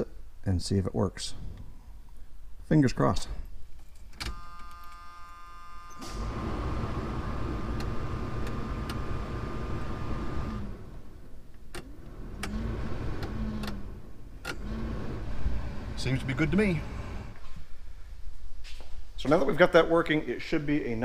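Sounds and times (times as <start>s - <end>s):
warning buzzer: 4.3s - 6.3s
blower motor running: 5.4s - 11.2s, 11.8s - 17.4s
pickup truck engine starting and running: 6.0s - 17.4s
control levers clicking: 11.6s - 14.9s.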